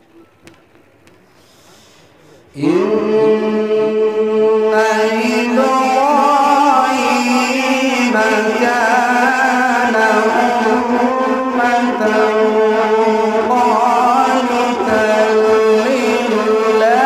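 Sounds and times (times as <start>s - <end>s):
man reciting melodically: 2.5s - 17.0s.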